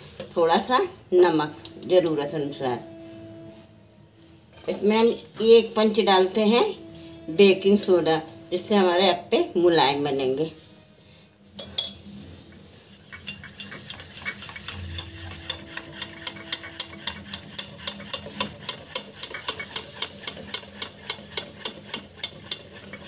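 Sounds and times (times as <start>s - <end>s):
wet stirring of batter: 12.6s - 23.0s
whisk tapping a steel pot: 12.8s - 23.0s.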